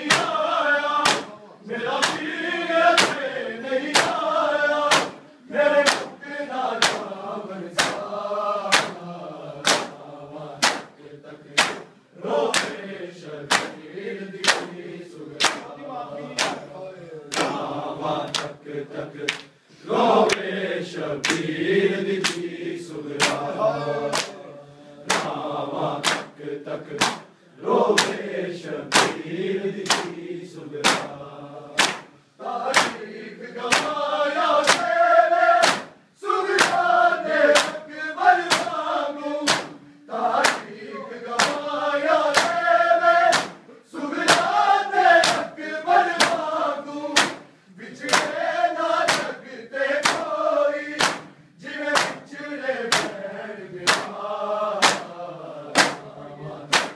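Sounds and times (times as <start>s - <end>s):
hands slapping chests: 0.0s - 0.4s, 1.0s - 1.3s, 1.9s - 2.3s, 2.9s - 4.2s, 4.9s - 5.2s, 5.8s - 6.2s, 6.8s - 7.2s, 7.8s - 8.1s, 8.7s - 9.0s, 9.6s - 10.0s, 10.6s - 12.8s, 13.5s - 13.8s, 14.4s - 14.8s, 15.4s - 15.7s, 16.4s - 16.7s, 17.3s - 17.7s, 18.3s - 18.6s, 19.2s - 19.6s, 20.2s - 20.5s, 21.2s - 21.6s, 22.2s - 22.5s, 23.2s - 23.5s, 24.1s - 24.4s, 25.0s - 25.4s, 26.0s - 28.2s, 28.9s - 29.2s, 29.8s - 30.2s, 30.8s - 31.2s, 31.8s - 37.8s, 38.4s - 46.5s, 47.2s - 49.4s, 50.0s - 50.3s, 50.9s - 52.3s, 52.9s - 53.2s, 53.8s - 54.2s, 54.8s - 55.1s, 55.7s - 56.0s, 56.7s - 56.9s
men chanting a lament: 0.0s - 56.9s.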